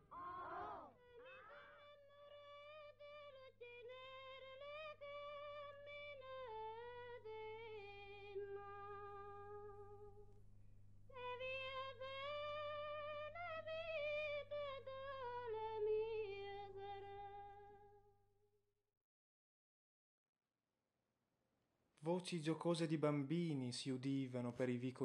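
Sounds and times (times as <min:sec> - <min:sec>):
person singing unaccompanied: 0:00.0 - 0:10.3, 0:11.1 - 0:17.9
low steady hum: 0:02.2 - 0:18.0.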